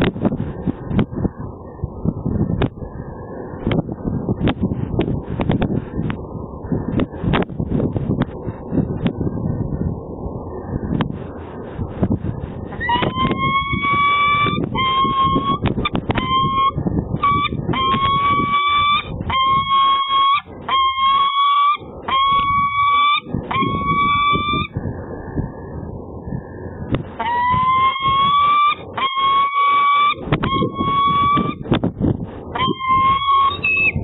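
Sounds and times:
low rumble: 0.0s - 19.8s, 21.8s - 29.2s, 30.0s - 34.0s
falcon calling: 12.8s - 24.8s, 27.2s - 31.7s, 32.5s - 34.0s.

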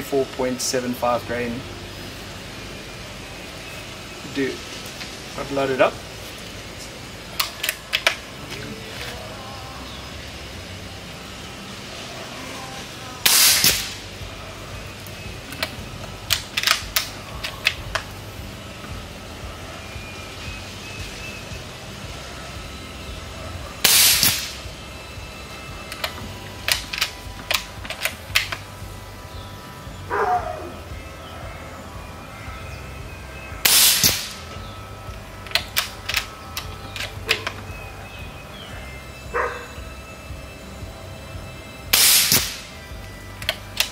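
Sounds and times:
air rifle shot: 13.2s - 14.0s, 23.8s - 24.6s, 33.6s - 34.4s, 41.9s - 42.7s.

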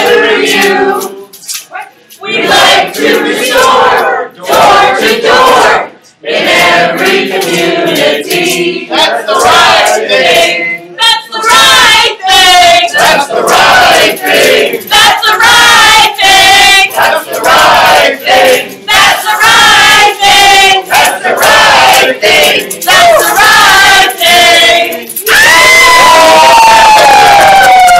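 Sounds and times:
choir singing and chanting: 0.0s - 1.4s, 2.2s - 27.9s
long held shout: 25.3s - 27.9s.

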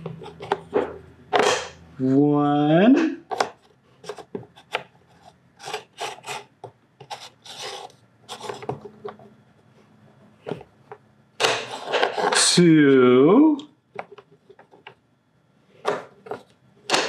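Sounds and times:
wooden puzzle piece scraping: 0.0s - 1.7s, 3.2s - 10.7s, 11.4s - 12.5s, 15.7s - 17.0s.

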